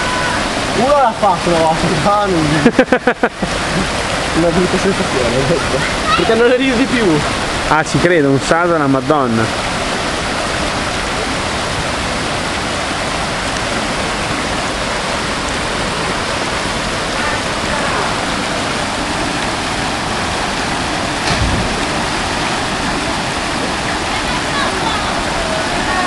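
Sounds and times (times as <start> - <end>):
waterfall rushing: 0.0 - 26.0
low thump: 21.2 - 22.4.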